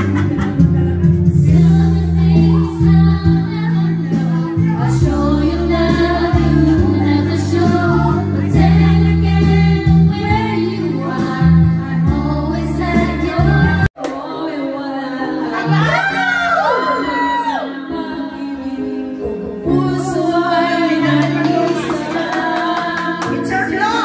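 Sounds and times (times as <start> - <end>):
backing track with heavy bass: 0.0 - 13.9
person singing: 0.0 - 24.0
women singing karaoke: 0.0 - 24.0.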